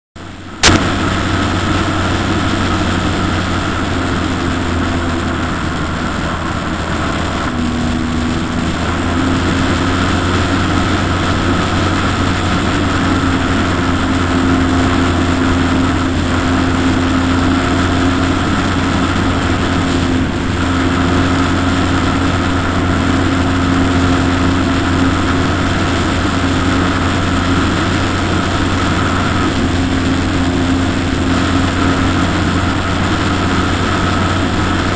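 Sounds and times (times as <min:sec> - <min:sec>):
model aircraft motor humming: 0:00.2 - 0:34.9.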